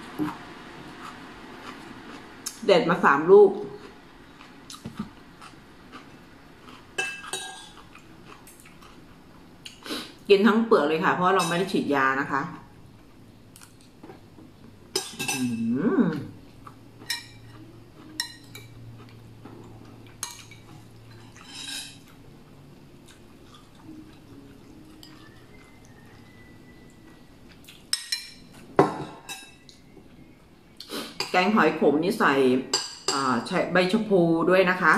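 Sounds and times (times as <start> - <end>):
metal spoon clinking on dishes: 7.0 - 7.8, 14.9 - 15.7, 17.0 - 18.7, 27.9 - 29.8, 32.7 - 33.3.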